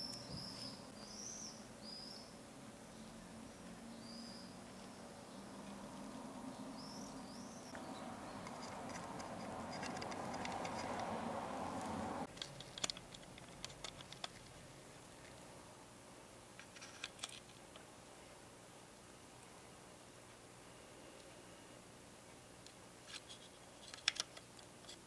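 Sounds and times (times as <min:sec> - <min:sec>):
plastic parts clicking and tapping: 0:08.4 - 0:11.1, 0:12.3 - 0:14.6, 0:23.1 - 0:25.0.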